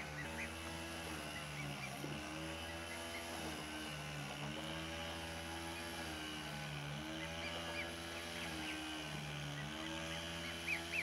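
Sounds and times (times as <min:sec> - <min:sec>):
goslings peeping: 0:00.0 - 0:03.8, 0:07.1 - 0:11.0
small petrol engine running: 0:00.0 - 0:11.0.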